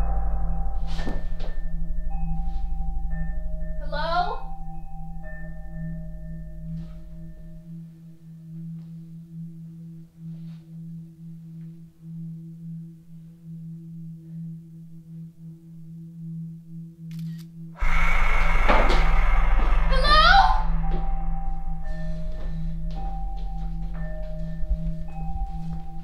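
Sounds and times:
deep rumble: 0.0 - 7.9, 17.8 - 26.0
low steady hum: 0.0 - 26.0.

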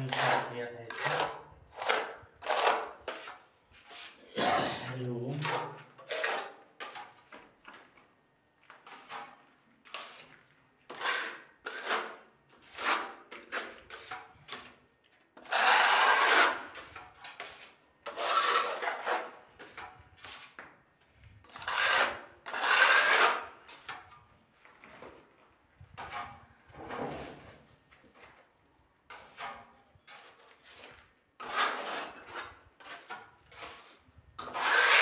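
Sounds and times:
trowel scraping putty on wall: 0.0 - 4.3, 4.9 - 7.5, 8.8 - 14.8, 15.4 - 20.8, 21.4 - 24.3, 25.9 - 28.4, 29.1 - 35.0.

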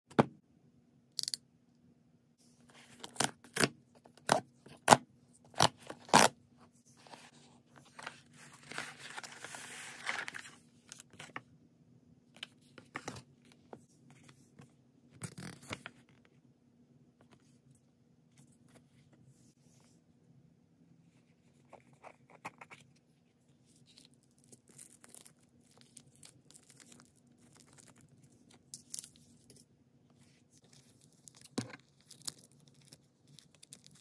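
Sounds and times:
paper and card rustling: 6.9 - 11.4.

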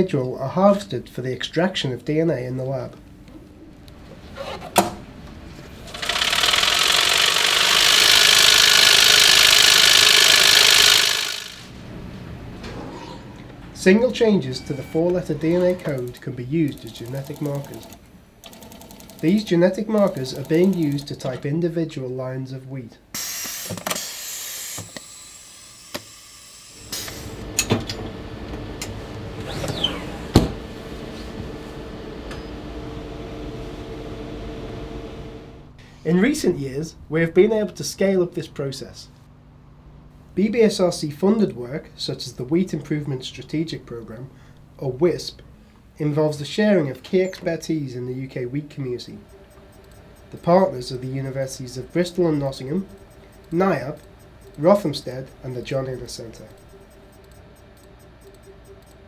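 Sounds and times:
machine hum: 2.4 - 21.2, 26.5 - 37.2, 47.6 - 59.0
bead mill rattling buzz: 5.9 - 11.7.

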